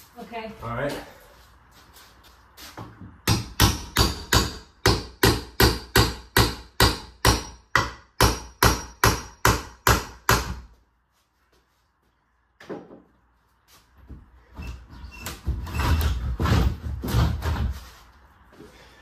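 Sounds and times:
hammer striking wooden board: 0:03.2 - 0:10.7.

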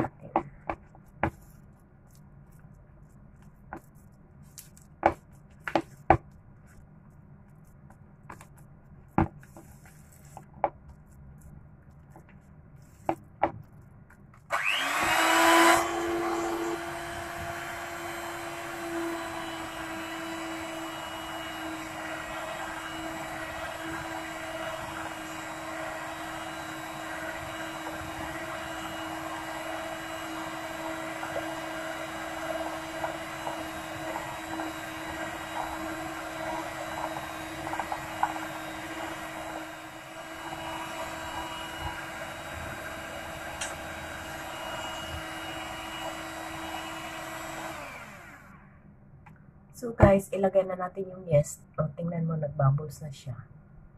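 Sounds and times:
electric hand mixer running: 0:14.5 - 0:48.7.

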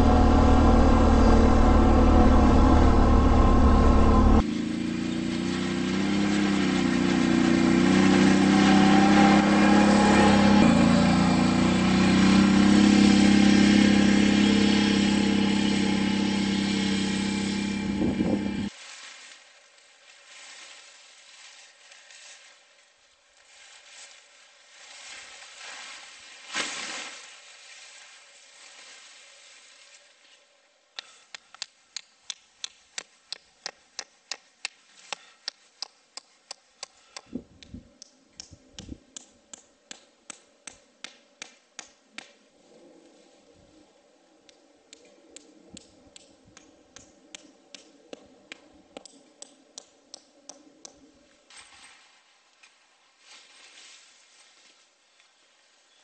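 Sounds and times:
atv engine running: 0:00.0 - 0:18.7
sharp evenly spaced taps: 0:31.0 - 0:37.4, 0:38.0 - 0:42.3, 0:44.9 - 0:51.0.

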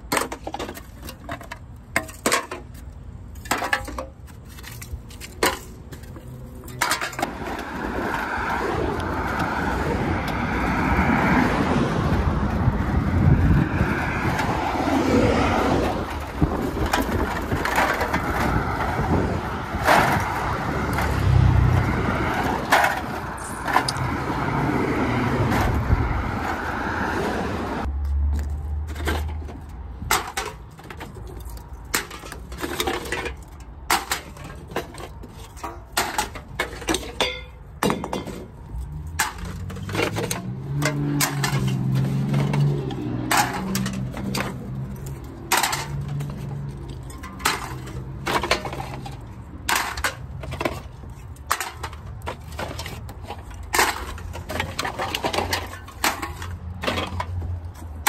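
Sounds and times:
wind and road noise: 0:00.0 - 0:58.0.

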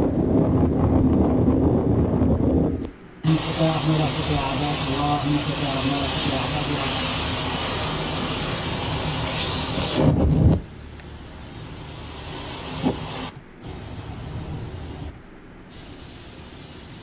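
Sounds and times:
traffic low rumble: 0:00.0 - 0:17.0
heavy rain and water spray: 0:03.2 - 0:10.6, 0:11.2 - 0:15.1, 0:15.7 - 0:17.0.

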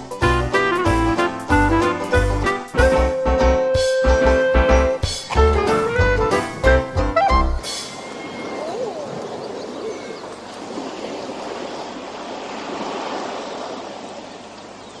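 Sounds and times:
sea surf on a beach: 0:05.0 - 0:15.0
faint wavering calls: 0:07.6 - 0:10.6.

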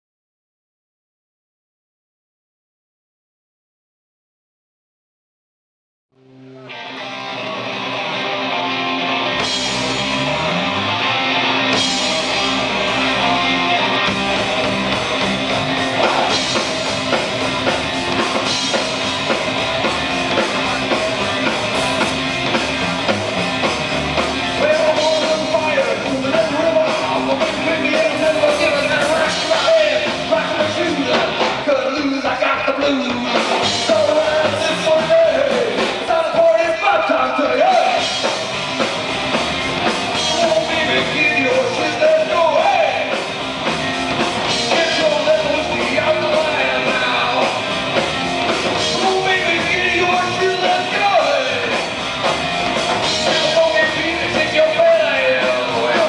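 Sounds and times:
live rock band playing: 0:06.2 - 0:56.0
man singing: 0:24.4 - 0:38.2, 0:40.1 - 0:43.2, 0:44.5 - 0:47.7, 0:48.8 - 0:51.9, 0:53.1 - 0:56.0.

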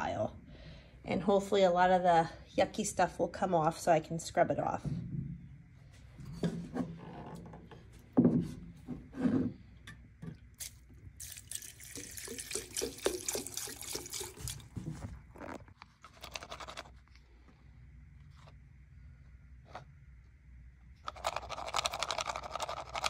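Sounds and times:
liquid splashing in glass jar: 0:10.5 - 0:14.7.

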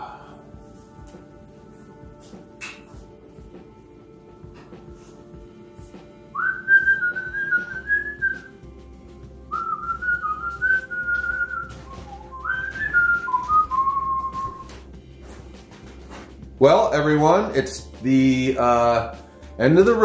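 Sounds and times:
person whistling a tune: 0:06.3 - 0:08.6, 0:09.5 - 0:14.9.

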